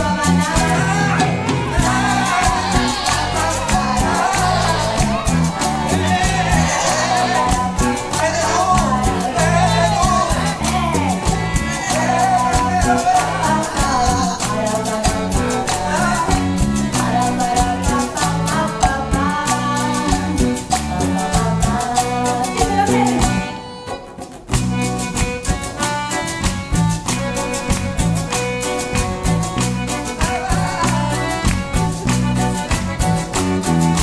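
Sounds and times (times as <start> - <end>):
person singing: 0.0 - 23.7, 27.3 - 32.7
accordion: 0.0 - 34.0
congas: 0.0 - 34.0
drum kit: 0.0 - 34.0
guitars: 0.0 - 34.0.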